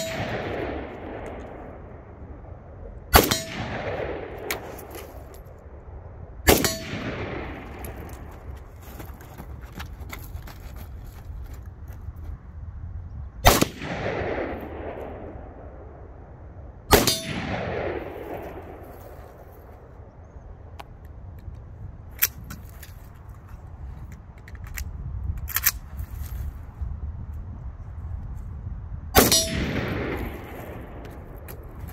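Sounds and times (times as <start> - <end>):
rifle shots with echo: 0.0 - 2.4, 3.1 - 5.0, 6.5 - 8.5, 13.4 - 16.1, 16.9 - 19.4, 29.2 - 31.9.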